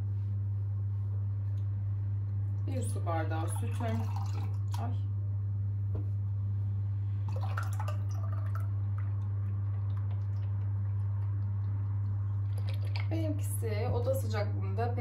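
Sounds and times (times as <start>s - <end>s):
steady low hum: 0.0s - 15.0s
drips and splashes: 3.3s - 4.9s, 7.3s - 13.2s
milk pouring: 3.4s - 4.8s, 7.3s - 13.2s.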